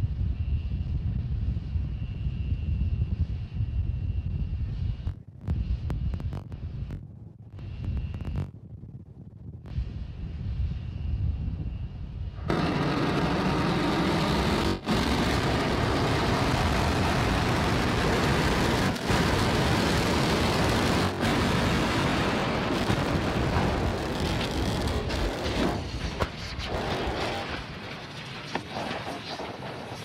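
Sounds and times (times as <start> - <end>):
rocket engine roar: 9.6 - 30.0.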